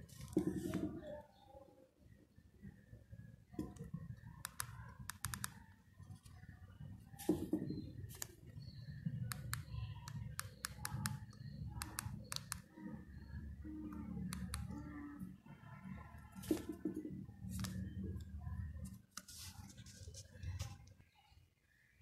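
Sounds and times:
phone keypad clicks: 4.4s - 5.6s, 9.2s - 12.7s.

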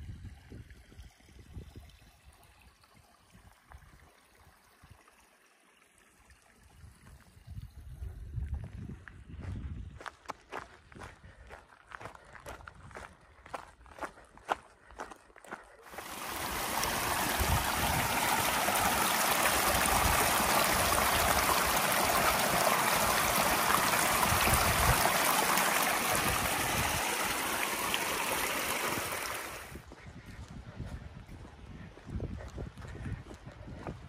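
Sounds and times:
mountain stream rushing: 15.9s - 29.8s.

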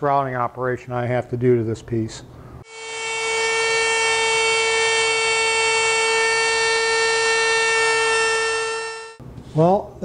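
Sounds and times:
router high whine: 2.6s - 9.2s.

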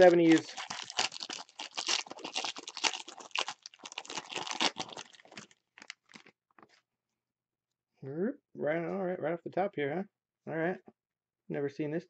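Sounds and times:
foil wrapper tearing and crinkling: 0.0s - 6.4s
cards rustling: 0.0s - 6.8s.

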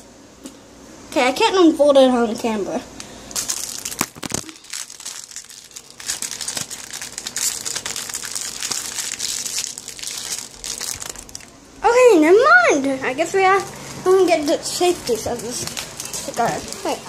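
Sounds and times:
popcorn bag crinkling: 3.3s - 11.6s, 14.4s - 17.0s.

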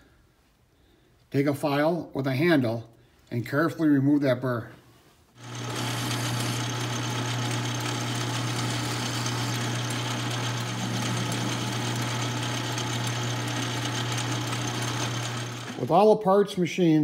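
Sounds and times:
metal lathe running: 5.4s - 15.9s.

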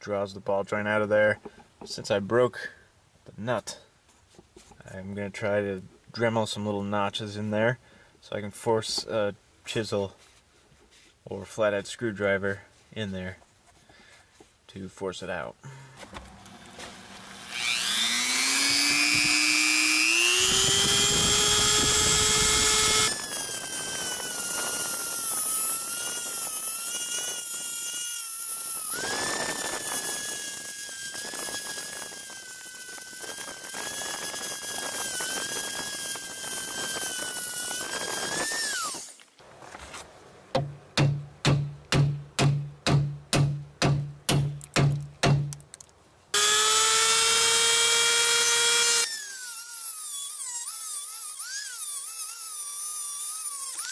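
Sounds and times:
rotary tool whining and grinding: 16.0s - 39.4s, 46.4s - 53.9s
sharp knocks: 40.5s - 45.6s.

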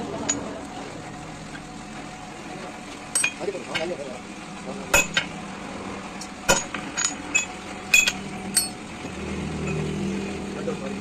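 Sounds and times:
metal clinking on metal: 3.1s - 3.9s, 6.5s - 8.8s, 9.6s - 9.9s.

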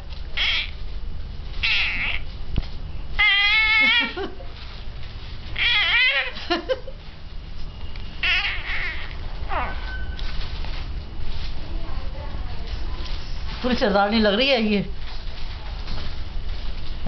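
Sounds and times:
infant squealing and cooing: 0.4s - 0.8s, 1.6s - 2.2s, 3.2s - 4.2s, 5.6s - 6.4s, 8.2s - 10.1s.

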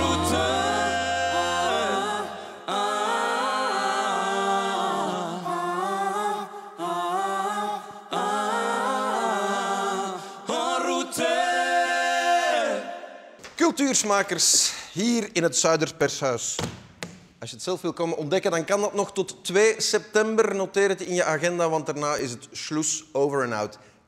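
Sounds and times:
a cappella singing: 0.0s - 13.4s.

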